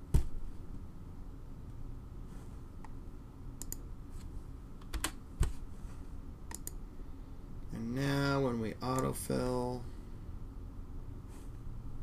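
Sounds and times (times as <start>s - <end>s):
low background noise: 0.0s - 12.0s
mouse and keyboard clicks: 6.5s - 6.8s.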